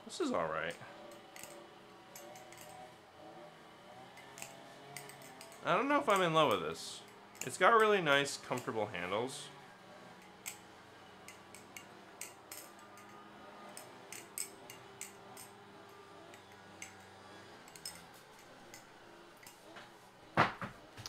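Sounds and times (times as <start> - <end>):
knife flipping metal clicks: 1.1 - 2.8, 4.2 - 5.6.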